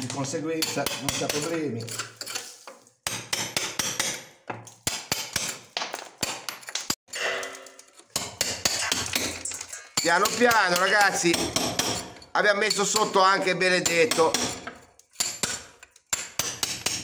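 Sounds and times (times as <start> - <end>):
hammer striking steel chisel: 0.0 - 2.4, 3.0 - 17.0.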